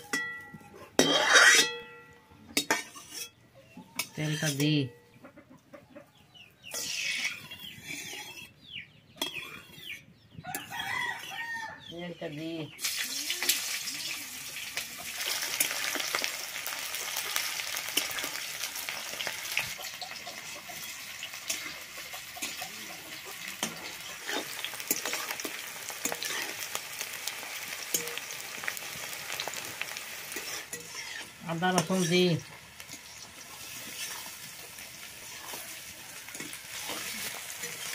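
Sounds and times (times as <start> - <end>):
metal spatula scraping pan: 0.0 - 3.4, 6.6 - 11.5, 17.7 - 29.6, 30.2 - 37.9
chickens calling: 5.1 - 12.7, 16.5 - 27.6
onions sizzling in hot oil: 6.7 - 7.3, 12.8 - 37.9.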